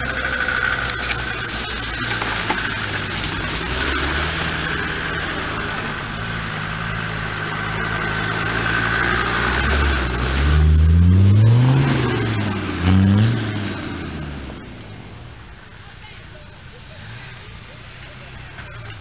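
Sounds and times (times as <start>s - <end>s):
off-road vehicle engine revving: 0.0s - 19.0s.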